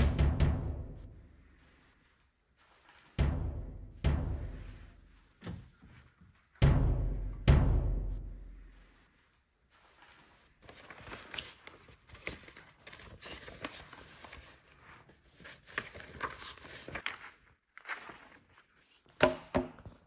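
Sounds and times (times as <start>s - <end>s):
paper rustling and shuffling: 9.7s - 19.2s.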